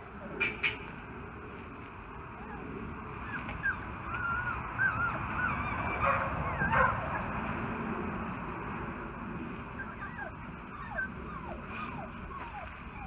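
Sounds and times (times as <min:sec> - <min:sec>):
puppies whining and squeaking: 0:02.4 - 0:07.3, 0:09.6 - 0:13.0.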